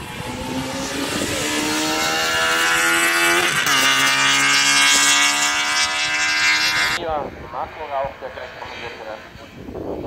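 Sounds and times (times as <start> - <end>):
race car accelerating past: 0.0 - 7.0.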